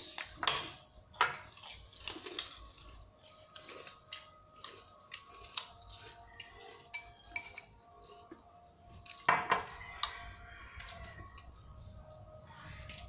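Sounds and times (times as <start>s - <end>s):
cutlery clinking on ceramic bowls: 0.0s - 2.6s, 5.1s - 8.2s, 9.0s - 11.5s.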